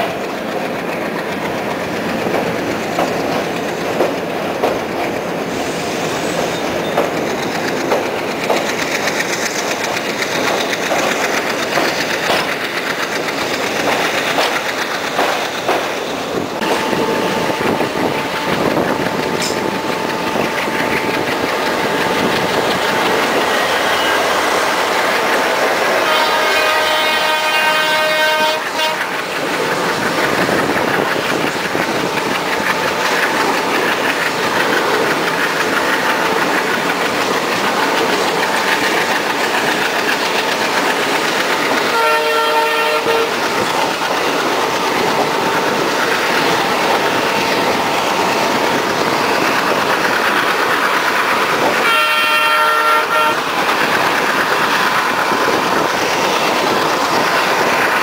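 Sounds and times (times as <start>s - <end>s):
trains rushing and clattering: 0.0s - 58.0s
multi-tone train horn: 25.7s - 29.3s, 41.8s - 43.6s, 51.7s - 53.7s.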